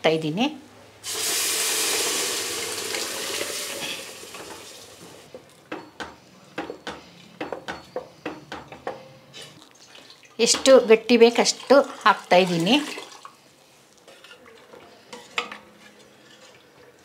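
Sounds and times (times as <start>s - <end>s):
loud sizzle in hot oil: 1.0s - 4.4s
wooden spatula scraping pot: 14.0s - 16.7s.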